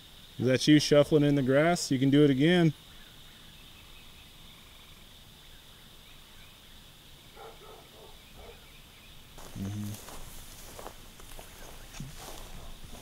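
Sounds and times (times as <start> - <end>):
insects chirring: 0.0 - 13.0
distant animal calls: 7.2 - 13.0
footsteps on gravel: 9.4 - 13.0
low voice-like sound: 9.6 - 10.0.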